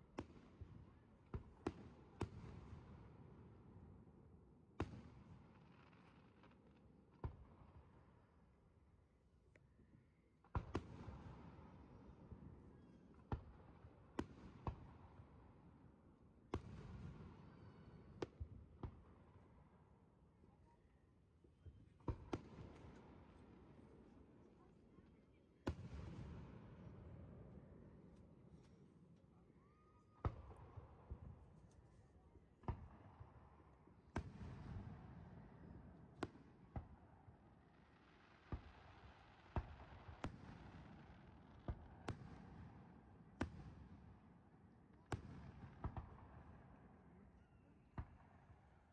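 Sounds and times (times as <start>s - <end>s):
faint firework pops: 22.0s - 23.2s, 25.6s - 26.6s, 45.0s - 46.5s.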